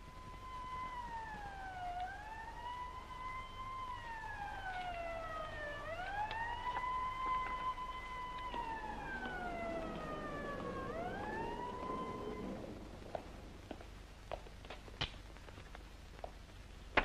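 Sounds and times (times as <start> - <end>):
siren wailing: 0.0 - 13.2.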